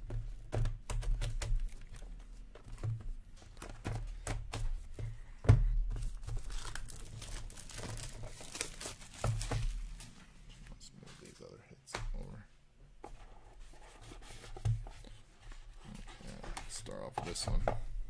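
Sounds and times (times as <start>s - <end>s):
plastic wrap tearing and crinkling: 6.0s - 10.3s.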